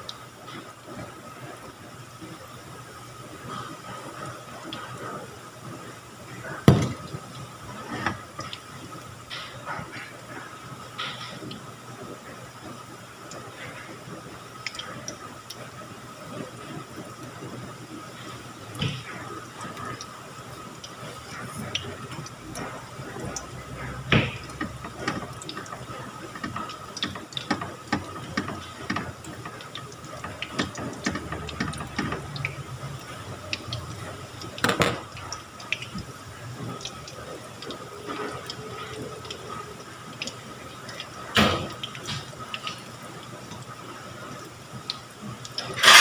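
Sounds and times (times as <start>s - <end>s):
sharp knocks: 6.7s - 7.0s
fritters sizzling in hot oil: 18.1s - 39.6s, 44.8s - 46.0s.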